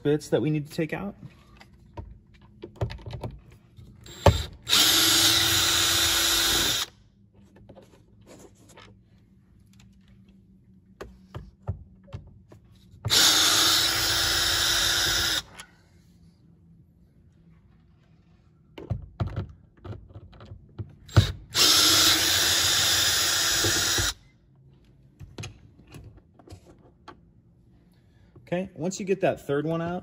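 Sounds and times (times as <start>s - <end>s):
cordless drill running: 4.0s - 6.9s, 13.1s - 15.5s, 21.1s - 24.2s.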